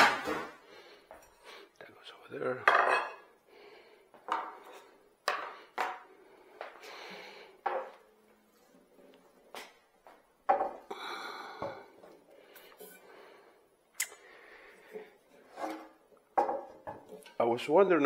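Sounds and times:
metal scraping: 15.3s - 16.1s.

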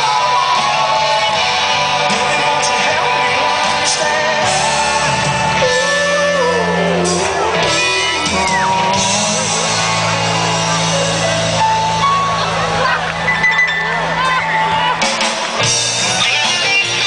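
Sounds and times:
person singing: 0.0s - 10.4s
drums: 0.0s - 17.0s
electric guitars: 0.0s - 17.0s.

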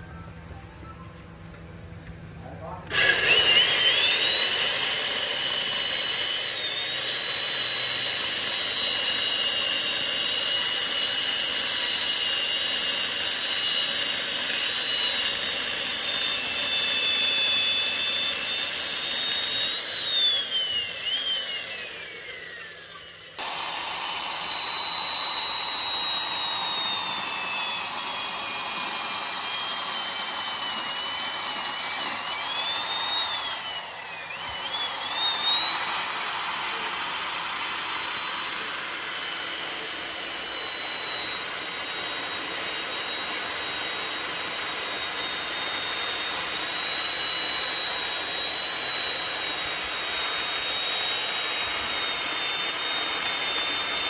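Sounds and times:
power tool motor whine: 1.5s - 54.0s.

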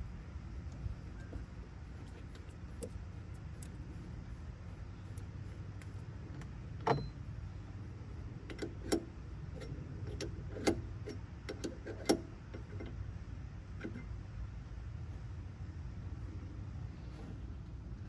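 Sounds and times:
steady low rumble: 0.0s - 11.5s.

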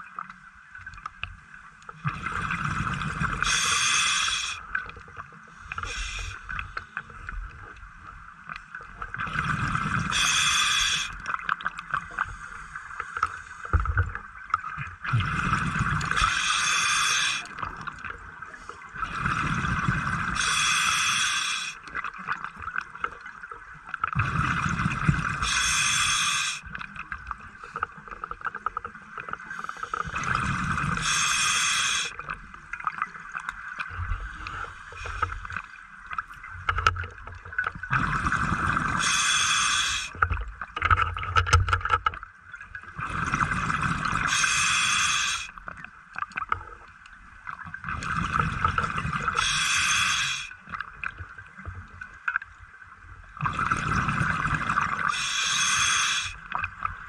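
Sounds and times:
diver breathing through regulator: 3.4s - 4.6s, 5.6s - 7.0s, 10.0s - 11.2s, 16.1s - 17.6s, 20.4s - 21.8s, 25.4s - 26.6s, 29.5s - 32.2s, 38.8s - 40.2s, 44.2s - 45.6s, 49.3s - 50.6s, 55.0s - 56.4s
steady hiss: 3.4s - 4.8s, 5.5s - 7.0s, 10.1s - 11.2s, 16.1s - 17.6s, 20.3s - 21.9s, 25.4s - 26.7s, 30.9s - 32.3s, 34.0s - 35.8s, 39.0s - 40.2s, 44.3s - 45.6s, 49.3s - 50.6s, 55.0s - 56.5s.

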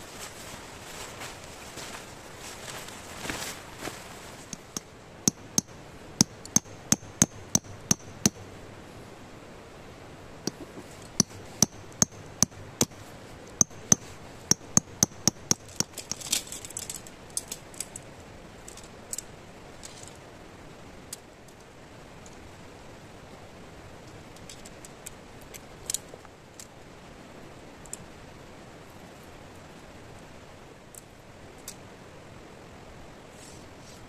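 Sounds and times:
rustle: 0.0s - 34.0s
tent poles clicking: 0.2s - 8.5s, 10.5s - 20.2s.

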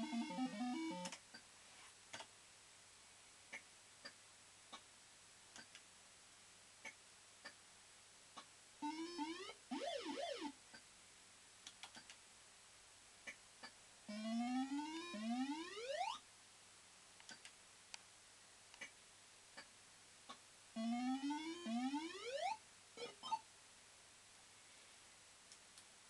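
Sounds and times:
rising synthesized sweeps: 14.1s - 16.2s.

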